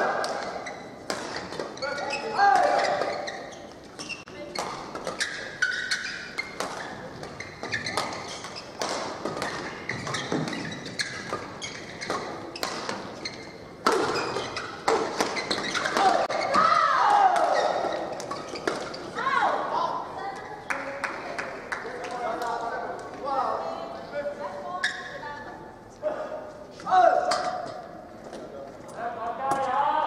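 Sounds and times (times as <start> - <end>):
shoes squeaking on court floor: 0.0 - 16.7, 17.5 - 19.2, 24.8 - 25.6.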